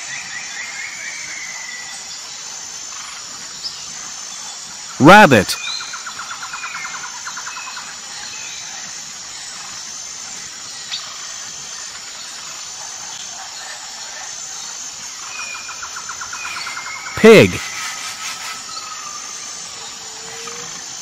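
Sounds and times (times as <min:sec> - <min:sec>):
rapid bird trill: 0:15.2 - 0:20.6.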